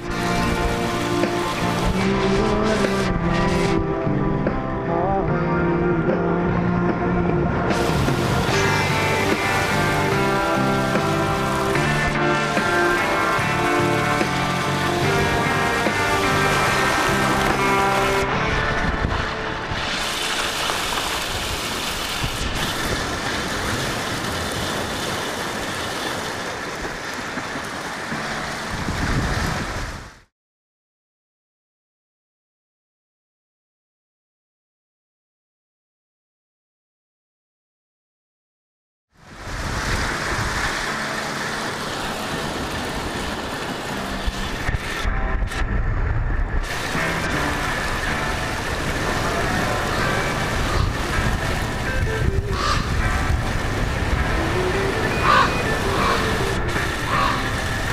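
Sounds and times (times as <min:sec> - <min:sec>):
bike tyres splashing through water: 0:00.0 - 0:03.7, 0:07.7 - 0:30.3, 0:39.2 - 0:45.3, 0:46.6 - 0:57.9
waves washing on shore: 0:00.0 - 0:04.0, 0:07.6 - 0:30.3, 0:39.2 - 0:57.9
wind buffeting microphone: 0:28.6 - 0:30.3, 0:39.3 - 0:41.2, 0:42.1 - 0:57.9.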